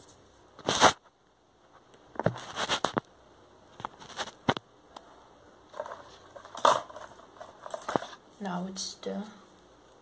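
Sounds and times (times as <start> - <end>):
handling rustles: 5.7 - 8.5.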